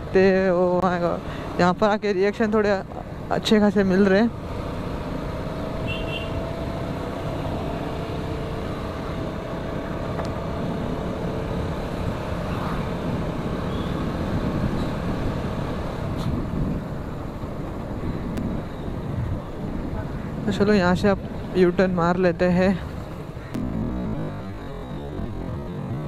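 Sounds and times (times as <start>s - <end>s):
road and wind noise: 0.0s - 26.0s
motorcycle engine running: 23.0s - 26.0s.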